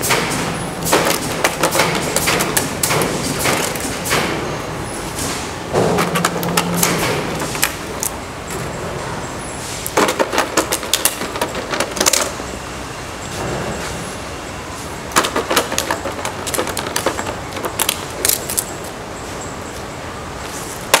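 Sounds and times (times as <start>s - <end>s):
scooter clattering on concrete: 15.2s - 18.4s.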